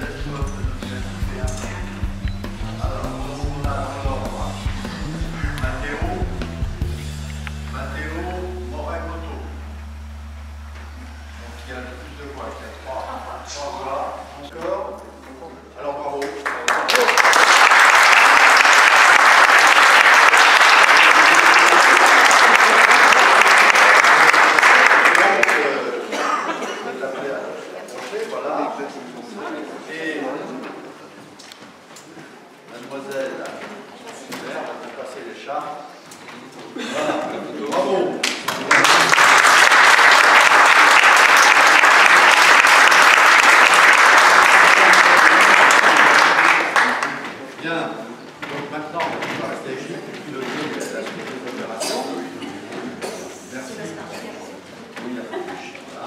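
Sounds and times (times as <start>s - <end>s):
crowd applause: 16.2s - 26.1s, 38.2s - 47.4s.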